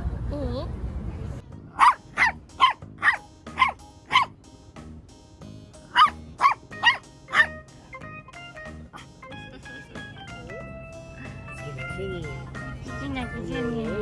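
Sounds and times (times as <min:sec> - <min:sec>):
dog barking sharply: 0:01.8 - 0:04.4, 0:05.9 - 0:07.6.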